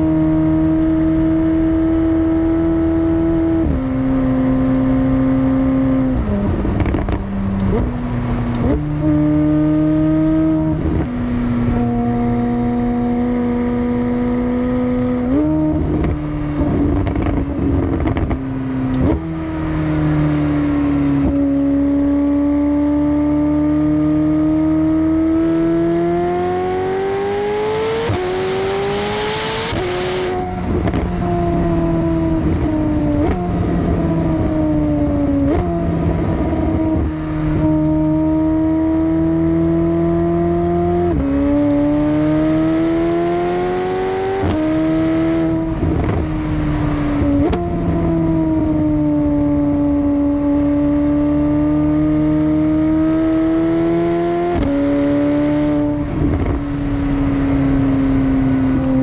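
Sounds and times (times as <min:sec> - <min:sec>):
car engine running: 0:28.0 - 0:42.1.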